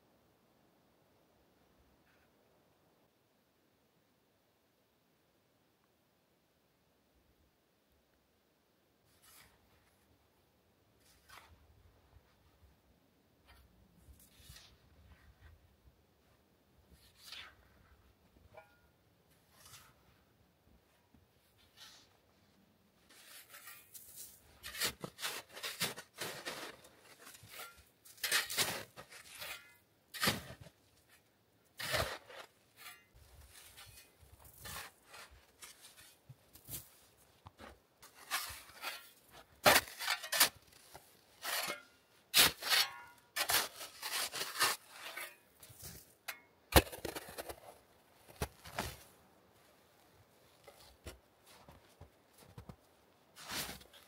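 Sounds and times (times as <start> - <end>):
shovel scraping through snow: 14.2 - 14.8, 23.1 - 30.7, 31.8 - 36.9, 38.0 - 46.1, 53.4 - 54.0.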